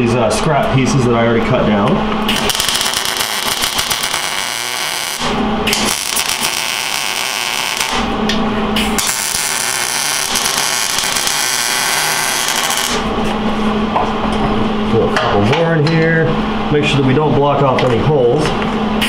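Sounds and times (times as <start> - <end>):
steady low hum: 0.0 - 19.0
welder arc crackling: 2.3 - 8.2, 8.8 - 13.1.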